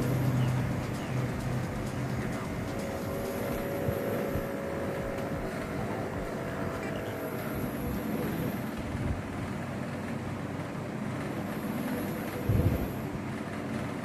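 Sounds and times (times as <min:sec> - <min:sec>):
inflation pump: 0:00.0 - 0:14.0.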